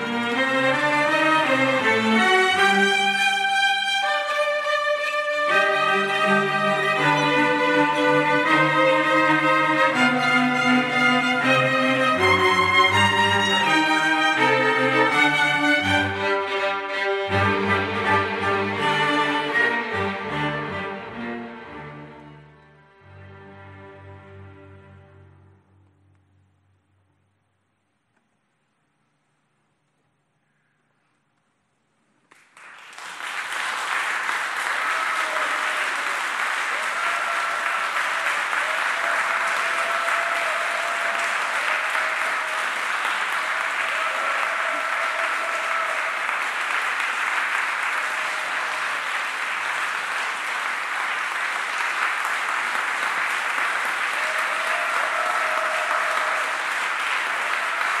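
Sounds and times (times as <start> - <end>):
audience applauding: 0.0 - 16.5, 32.1 - 58.0.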